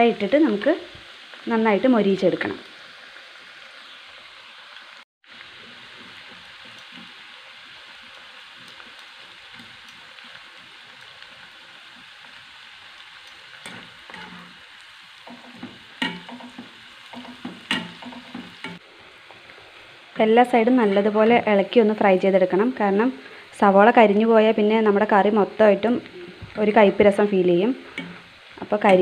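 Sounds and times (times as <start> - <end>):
onions sizzling in oil: 0.0 - 29.0
wire skimmer scraping a pan: 13.6 - 14.6.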